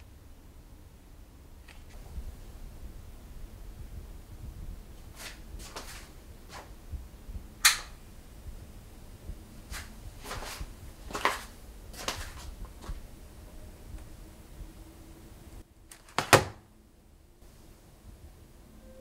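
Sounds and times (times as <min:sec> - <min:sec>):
low rumble: 0:02.0 - 0:05.1, 0:12.5 - 0:15.7.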